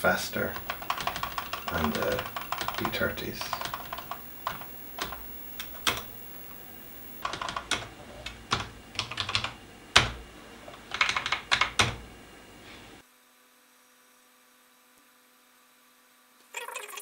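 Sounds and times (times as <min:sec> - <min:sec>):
steady background hiss: 0:00.0 - 0:13.0
keyboard keys being pressed: 0:00.4 - 0:12.0.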